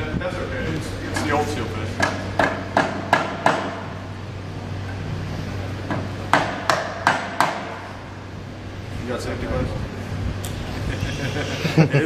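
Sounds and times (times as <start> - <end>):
hammer striking metal punch: 2.0 - 3.9, 6.3 - 7.8.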